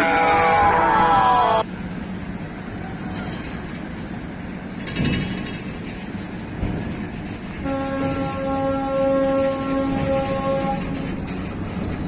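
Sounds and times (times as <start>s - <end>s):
steady train horn: 0.0s - 1.7s, 7.6s - 11.3s
heavy rail wagons rumbling: 0.0s - 12.0s.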